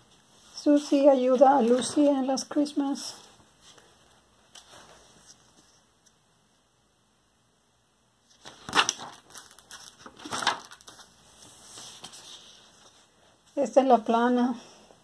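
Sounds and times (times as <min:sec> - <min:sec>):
paper page rustling: 0:08.3 - 0:13.1.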